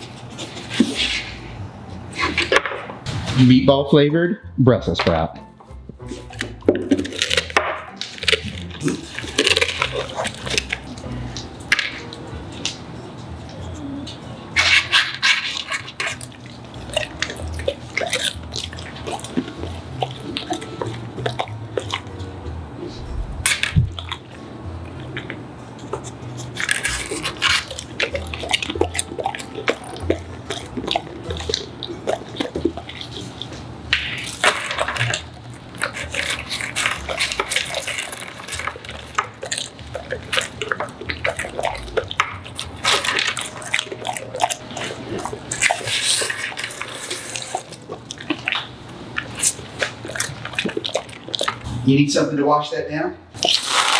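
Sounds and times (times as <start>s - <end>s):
dog chewing and licking lips: 6.0s - 51.8s.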